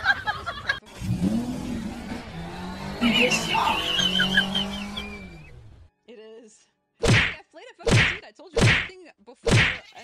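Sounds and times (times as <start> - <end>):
cat paw slapping whacks: 7.0 - 9.8.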